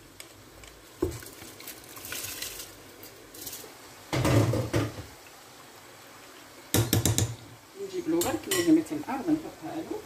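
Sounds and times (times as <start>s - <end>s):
rice pattering into water: 0.0s - 5.4s.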